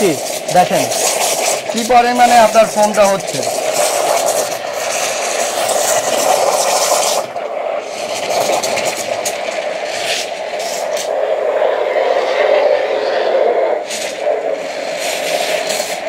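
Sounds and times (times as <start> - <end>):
espresso steam wand hissing: 0.0 - 16.0.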